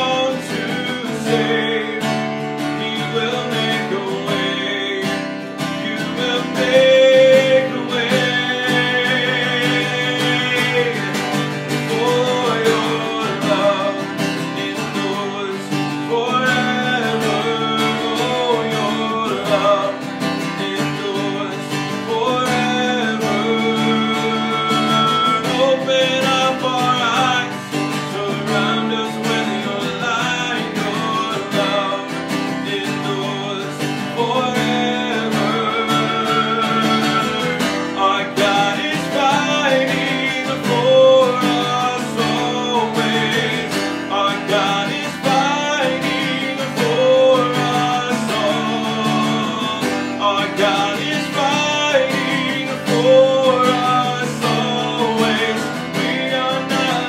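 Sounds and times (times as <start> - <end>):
man singing: 0.0 - 57.0
strummed acoustic guitar: 0.0 - 57.0.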